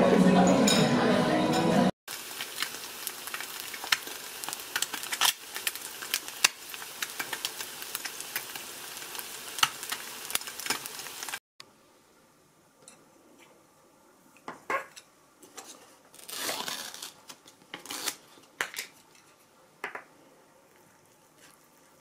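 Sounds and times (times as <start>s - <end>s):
egg sizzling in frying pan: 2.1s - 11.4s.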